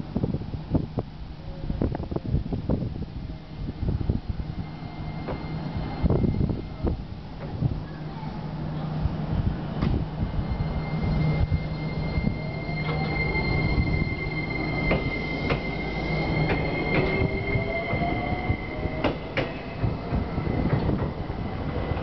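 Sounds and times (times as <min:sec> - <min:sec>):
steady high tone: 0:04.0 - 0:07.2, 0:10.0 - 0:22.0
train motors whining: 0:09.8 - 0:22.0.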